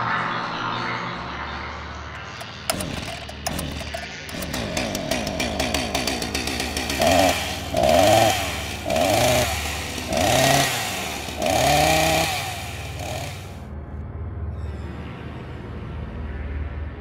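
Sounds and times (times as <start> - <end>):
chainsaw revving: 2.2 - 13.6.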